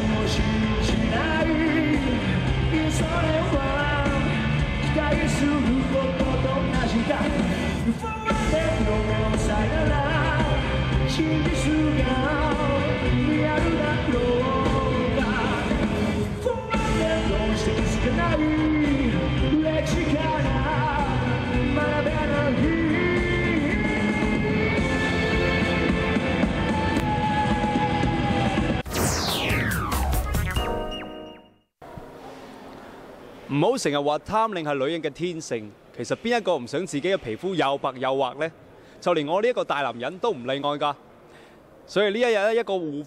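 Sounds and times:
drums: 0:00.0 - 0:32.4.

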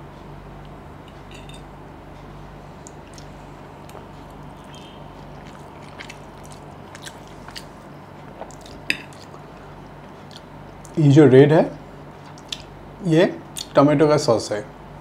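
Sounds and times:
steady low hum: 0:00.0 - 0:15.0
wet chewing and mouth clicks: 0:02.8 - 0:11.0, 0:12.2 - 0:12.7.

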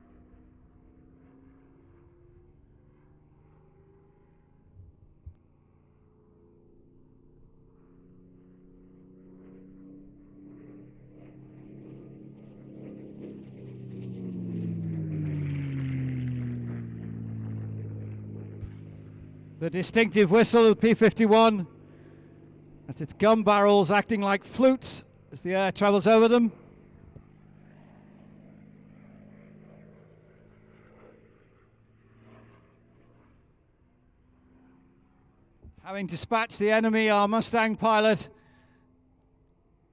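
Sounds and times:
propeller plane engine drone: 0:00.0 - 0:39.9.

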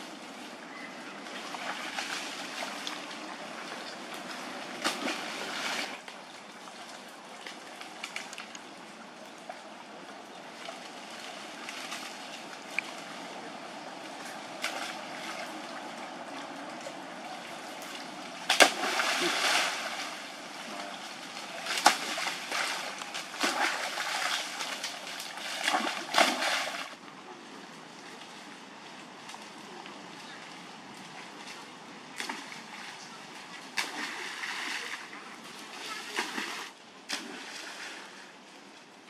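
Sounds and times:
water sloshing from swimming: 0:00.0 - 0:38.9
monkeys splashing into water: 0:01.3 - 0:06.0, 0:17.2 - 0:27.0, 0:33.7 - 0:38.0.

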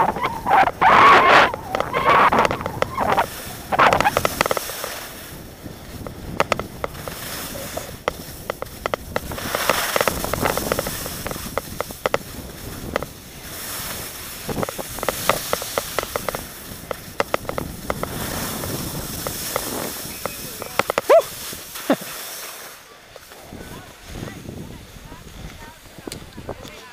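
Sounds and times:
sharp clicks and knocks: 0:00.0 - 0:05.0, 0:06.0 - 0:12.3, 0:14.5 - 0:18.2, 0:19.2 - 0:21.1
wind on microphone: 0:00.0 - 0:21.7, 0:23.4 - 0:26.8
ski edges scraping snow: 0:00.0 - 0:26.9.

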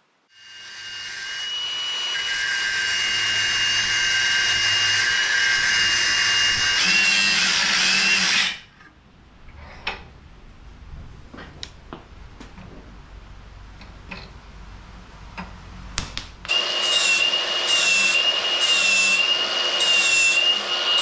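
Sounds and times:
angle grinder cutting steel: 0:00.3 - 0:08.7, 0:16.5 - 0:21.0.

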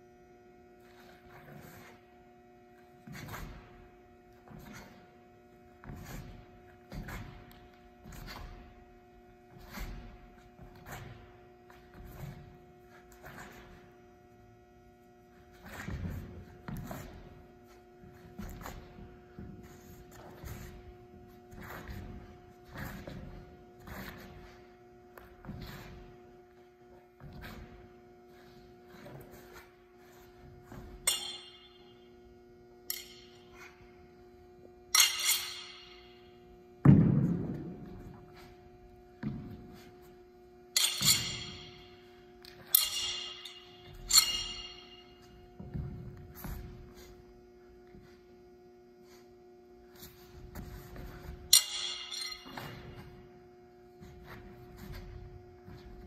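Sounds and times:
faint steady hum: 0:00.0 - 0:56.0
metal thud with ringing: 0:30.7 - 0:32.1, 0:40.8 - 0:46.6, 0:51.4 - 0:53.2
metal weapons clinking: 0:31.0 - 0:31.9, 0:34.9 - 0:36.2, 0:40.8 - 0:42.0, 0:42.7 - 0:45.1, 0:51.5 - 0:52.8
shuffling steps on hard floor: 0:52.6 - 0:56.0.

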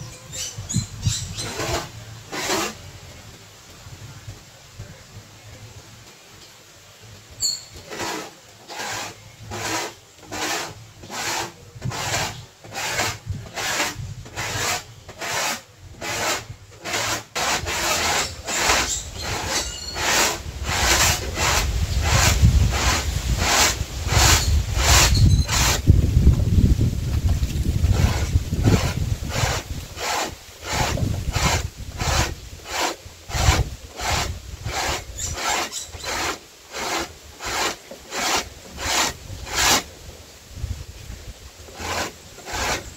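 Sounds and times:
corn rasping on grater: 0:07.9 - 0:25.9, 0:27.9 - 0:39.9, 0:41.7 - 0:42.9.

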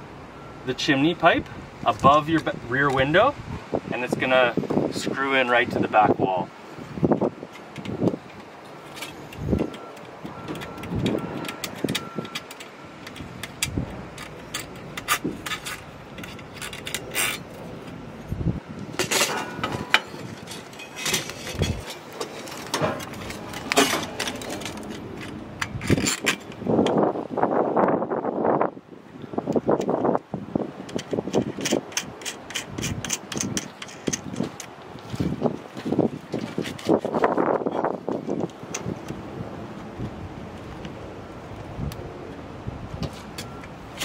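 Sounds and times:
metal clicks and clinks: 0:07.5 - 0:17.5, 0:30.9 - 0:34.7
metal scraping rub: 0:13.5 - 0:18.0, 0:19.0 - 0:26.6.

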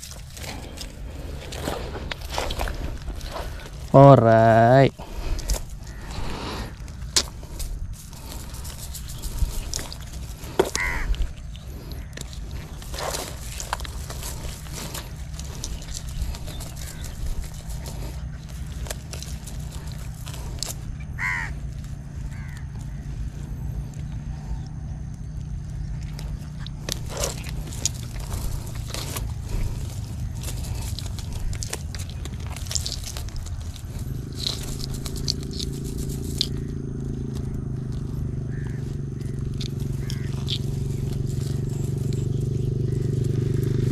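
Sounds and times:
low rumble: 0:00.0 - 0:43.9
scraping and crackling handling noises: 0:00.0 - 0:43.9
steady engine hum: 0:00.0 - 0:43.9
crow cawing: 0:05.1 - 0:06.9, 0:09.8 - 0:13.1, 0:15.7 - 0:18.5, 0:21.0 - 0:23.4, 0:36.4 - 0:40.8.

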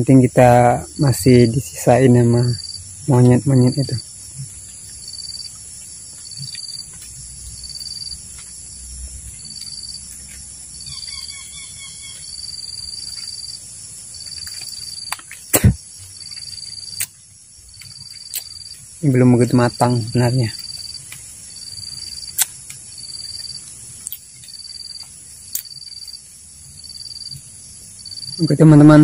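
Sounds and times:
high drone of insects: 0:00.0 - 0:29.0
bird call: 0:10.8 - 0:12.4.

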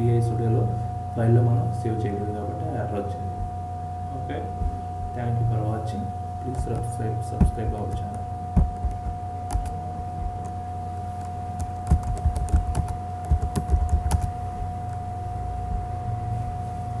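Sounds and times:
steady electrical hum: 0:00.0 - 0:17.0
computer keyboard keystrokes: 0:06.5 - 0:09.8, 0:11.2 - 0:14.3.

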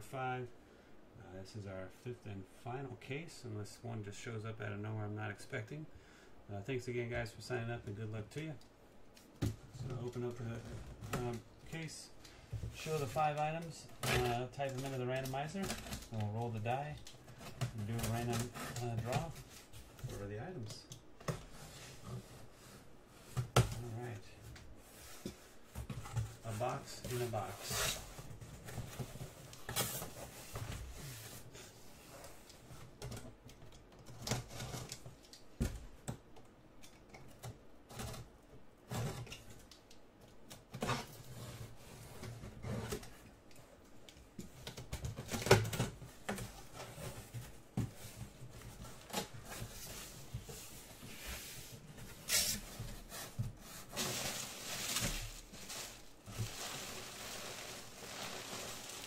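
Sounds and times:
bubble wrap rustling: 0:46.6 - 0:59.0.

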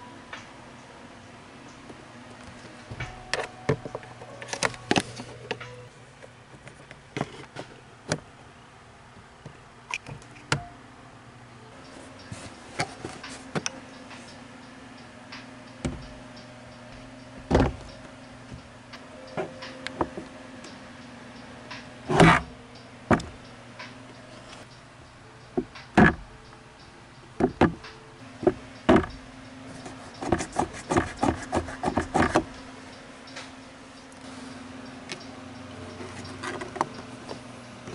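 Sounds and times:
plastic glove box knocking: 0:15.8 - 0:16.2, 0:17.4 - 0:17.9, 0:27.4 - 0:27.8, 0:28.4 - 0:29.2.

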